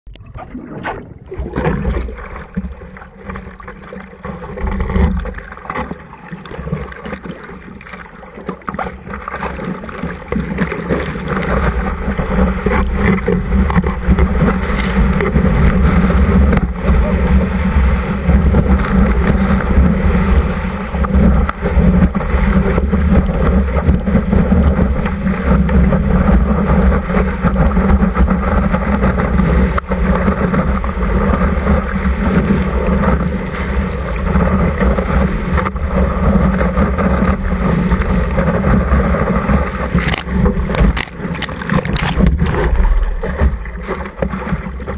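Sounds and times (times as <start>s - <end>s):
wind on microphone: 11.3s - 44.9s
whitewater rushing: 38.5s - 44.9s.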